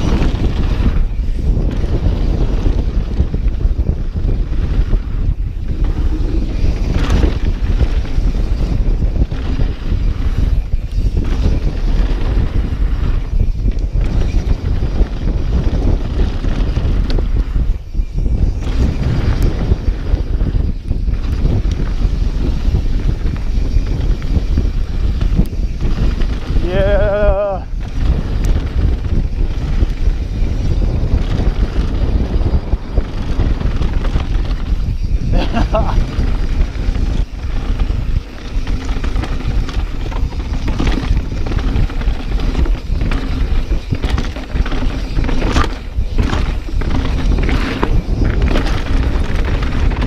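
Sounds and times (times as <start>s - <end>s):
mountain bike rumble: 0.0s - 50.0s
wind buffeting microphone: 0.0s - 50.0s.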